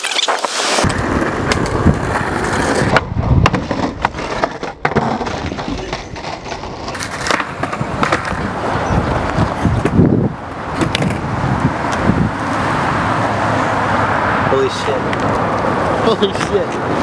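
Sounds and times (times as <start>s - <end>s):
skateboard wheels rolling on asphalt: 0.0s - 17.0s
skateboard clacks and knocks: 0.8s - 10.0s, 10.7s - 11.2s.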